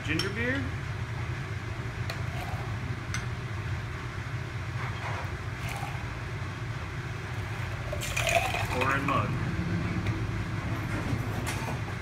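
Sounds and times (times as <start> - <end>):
steady low hum: 0.0 - 12.0
liquid pouring over ice: 7.8 - 8.8.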